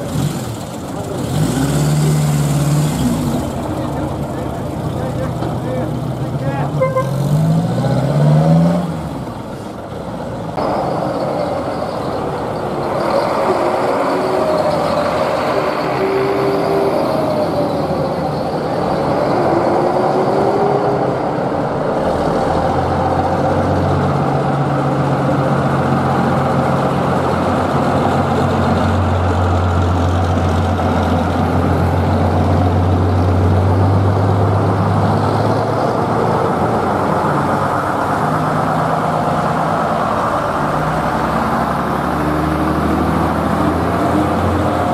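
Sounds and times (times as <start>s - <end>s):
bus diesel engine passing: 0.0s - 44.9s
car pulling away: 0.0s - 44.9s.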